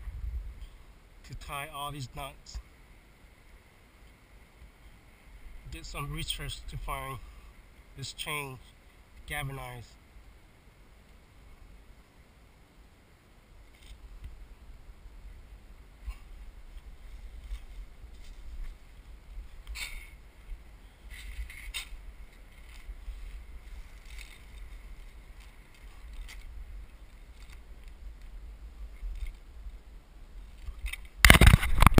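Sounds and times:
wind rumble on microphone: 0.0 - 1.0, 14.1 - 32.0.

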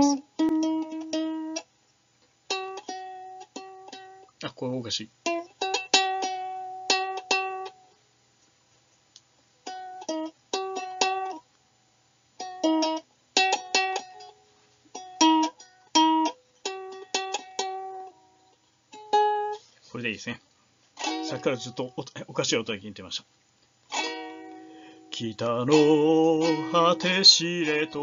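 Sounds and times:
plucked string instrument tuning: 0.0 - 1.7, 2.5 - 4.4, 5.2 - 7.9, 9.6 - 11.5, 12.4 - 19.7, 21.0 - 22.4, 23.9 - 28.0.

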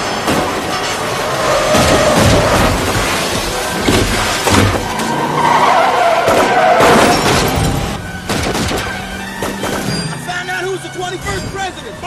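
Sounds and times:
tyres squealing on wet road: 0.0 - 8.2
car engines running: 0.0 - 12.0.

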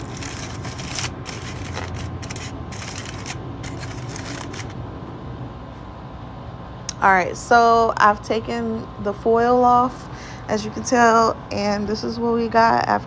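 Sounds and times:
aluminium foil crinkling: 0.0 - 4.8
steady low hum: 0.0 - 13.0.

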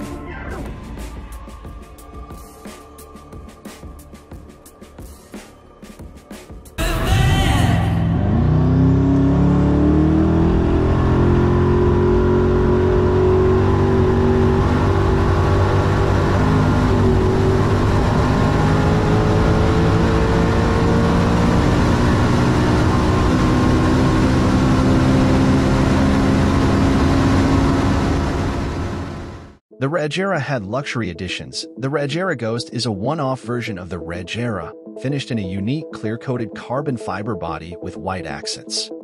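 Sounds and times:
car engine at full throttle: 7.8 - 29.6.

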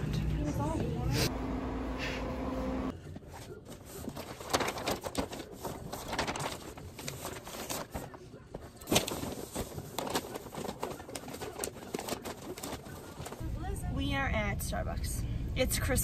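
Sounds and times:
wrapping paper rustling: 3.2 - 13.5.

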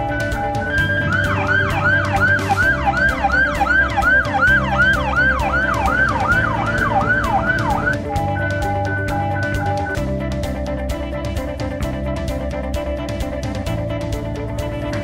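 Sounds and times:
emergency siren yelping: 0.0 - 10.0
background music: 0.0 - 15.0.

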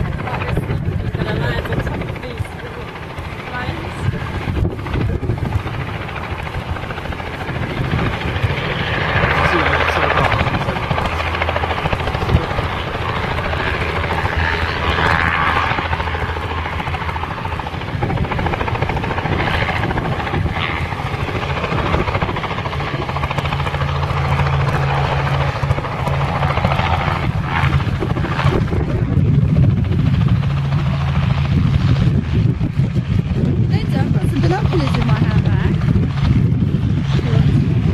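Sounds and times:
helicopter piston engine running: 0.0 - 37.9
helicopter rotor beating: 0.0 - 37.9.

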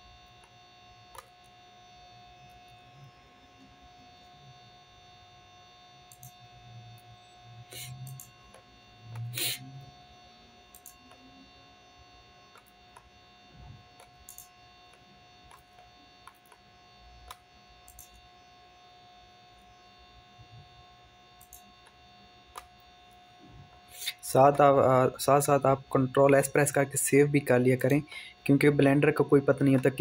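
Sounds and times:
faint electrical hum: 0.0 - 30.0
mouse and keyboard clicks: 14.0 - 14.5, 17.2 - 18.2, 21.4 - 22.0.

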